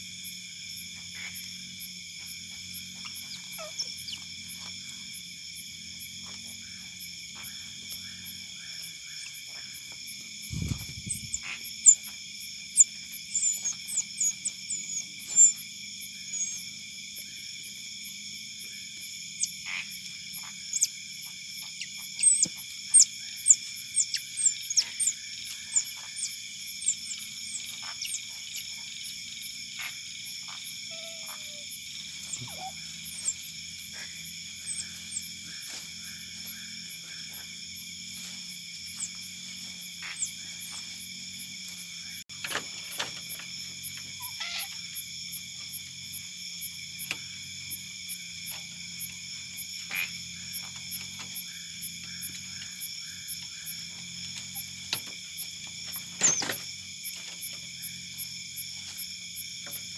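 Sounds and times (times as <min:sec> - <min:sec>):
night insects chorus: 0:00.0 - 0:59.9
otters chirping: 0:02.3 - 0:05.1, 0:06.2 - 0:17.3, 0:19.4 - 0:21.0, 0:21.6 - 0:41.0, 0:44.2 - 0:44.8.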